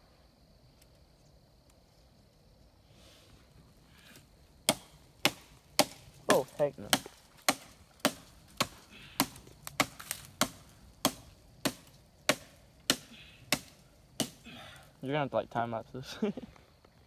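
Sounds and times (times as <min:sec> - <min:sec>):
hatchet chopping wood: 0:04.7 - 0:14.4.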